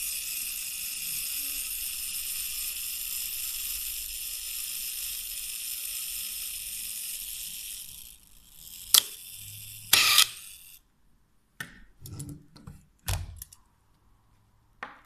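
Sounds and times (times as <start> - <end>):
camera self-timer whirr: 0.0 - 10.8.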